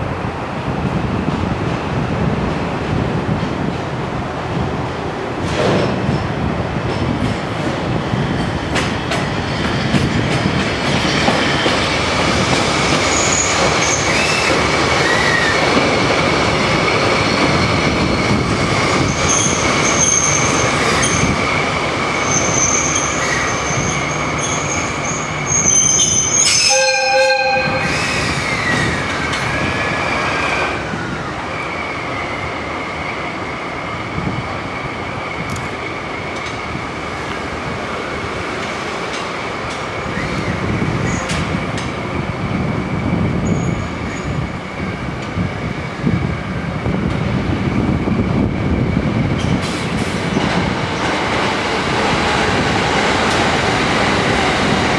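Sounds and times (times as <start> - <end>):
steel wheels squealing on track: 13.0 - 15.6, 22.2 - 30.7, 43.4 - 44.4
locomotive horn blast: 26.5 - 27.9.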